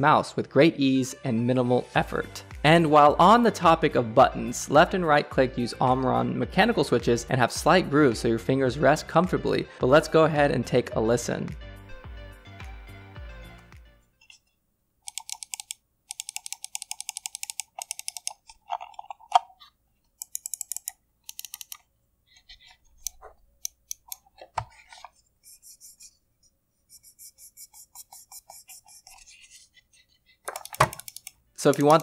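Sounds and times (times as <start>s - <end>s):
mouse buttons clicking rapidly: 15.0s - 19.5s, 20.2s - 24.4s, 26.9s - 29.4s, 30.4s - 32.0s.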